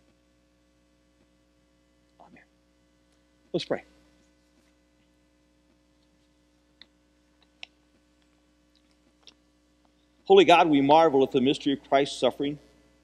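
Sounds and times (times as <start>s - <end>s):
faint room hum: 0.0s - 13.0s.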